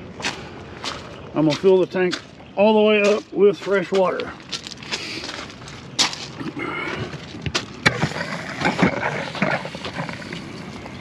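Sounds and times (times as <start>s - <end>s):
scraping: 4.8s - 11.0s.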